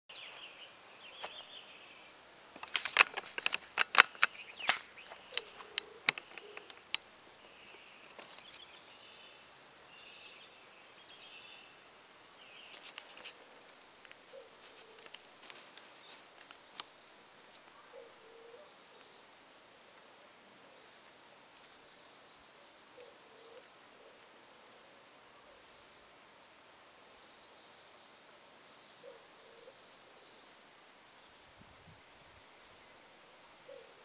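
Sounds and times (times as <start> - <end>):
birds chirping: 0.1 - 19.4
sharp clicks and crackles: 2.6 - 7.0
low cooing call: 5.1 - 6.8, 14.3 - 15.2, 17.7 - 19.2, 22.9 - 25.7, 29.0 - 30.0, 33.6 - 34.0.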